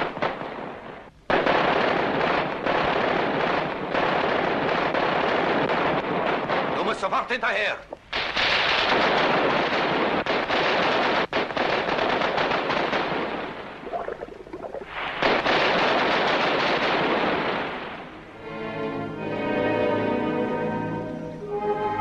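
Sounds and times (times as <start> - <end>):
automatic gunfire: 8.1 - 13.7, 15.0 - 17.9
bullets splashing into water: 13.8 - 15.5.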